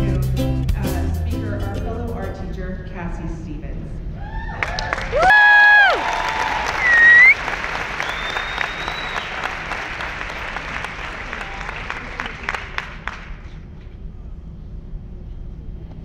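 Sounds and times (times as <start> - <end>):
high whoops: 4.2 - 9.4
audience applauding: 4.5 - 13.6.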